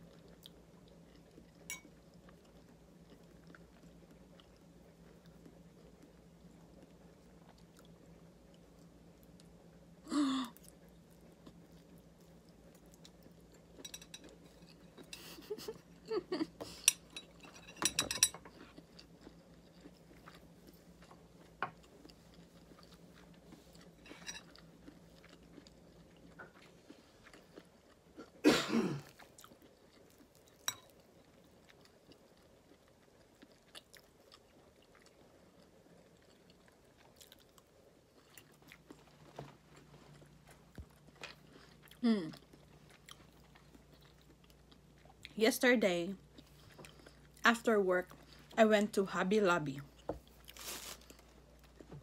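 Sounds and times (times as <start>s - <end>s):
quiet chewing: 0.0s - 9.8s, 10.6s - 28.4s, 29.0s - 45.4s, 46.2s - 48.6s, 49.8s - 52.0s.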